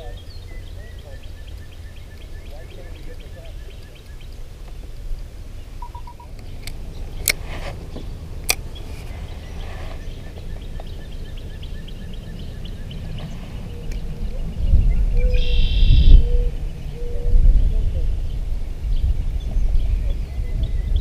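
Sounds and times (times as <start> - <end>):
faint even ticking: 0.0 - 9.4
low steady rumble: 0.0 - 21.0
short chirping: 5.8 - 7.9.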